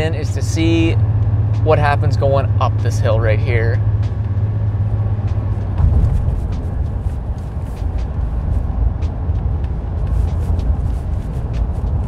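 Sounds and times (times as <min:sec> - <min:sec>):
truck engine drone: 0:00.0 - 0:12.0
tyre noise: 0:04.0 - 0:12.0
wind noise: 0:04.7 - 0:12.0.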